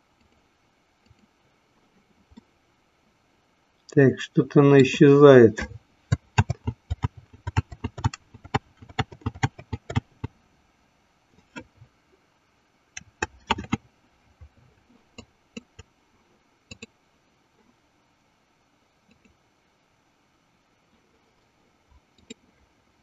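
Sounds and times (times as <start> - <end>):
computer mouse clicking: 6.1 - 10.3, 13.0 - 13.8, 15.2 - 15.9, 16.7 - 16.9, 19.1 - 19.4, 22.2 - 22.4.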